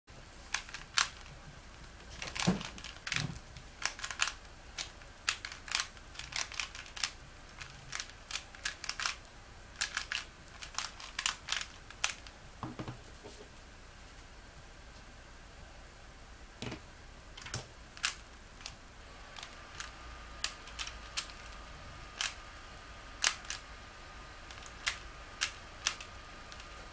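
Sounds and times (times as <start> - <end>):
puzzle cube layers clicking: 0.5 - 1.3, 3.8 - 12.3, 17.4 - 22.4, 23.2 - 23.6, 24.4 - 26.8.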